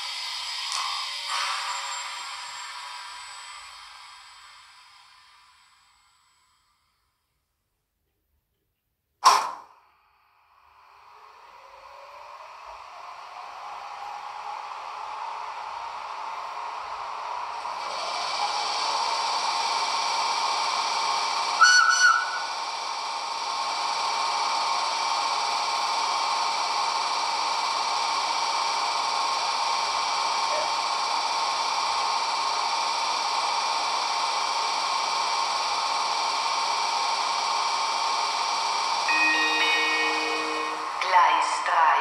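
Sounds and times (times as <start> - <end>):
fan hiss with hum: 9.6 - 42.0
several steady tones: 38.4 - 41.8.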